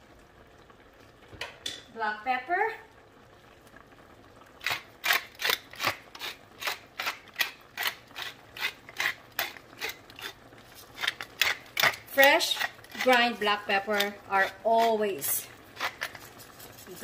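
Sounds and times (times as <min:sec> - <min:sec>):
pepper mill grinding clicks: 0:04.6 - 0:10.4, 0:11.0 - 0:13.2.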